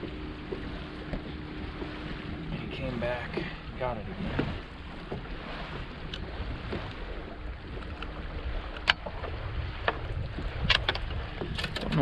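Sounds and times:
water noise around boat: 0.0 - 12.0
wind: 0.0 - 12.0.

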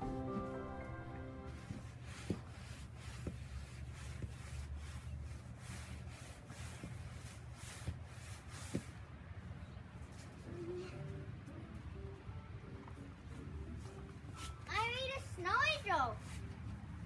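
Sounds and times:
snowsuit swishing against snow: 14.3 - 16.9.

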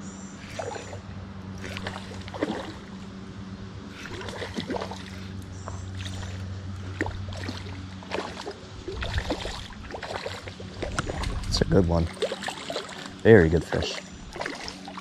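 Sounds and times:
steady low hum: 0.0 - 15.0
fish splashing at surface: 1.6 - 2.9, 3.9 - 5.3, 6.0 - 11.5, 12.1 - 13.2, 14.3 - 15.0.

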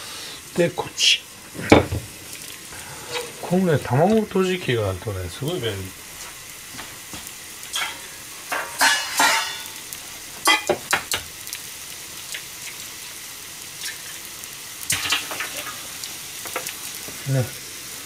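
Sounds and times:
food sizzling and bubbling in a pan: 0.0 - 18.0
sharp pops and clicks: 10.6 - 11.6.

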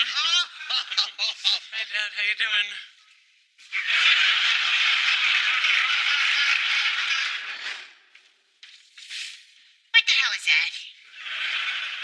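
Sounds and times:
studio audience laughing: 0.0 - 2.2, 3.6 - 7.9, 11.1 - 12.0.

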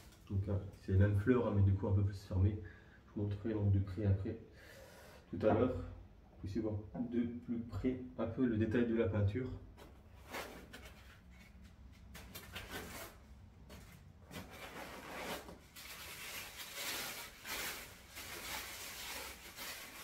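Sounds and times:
packaging rustling: 10.1 - 20.0.

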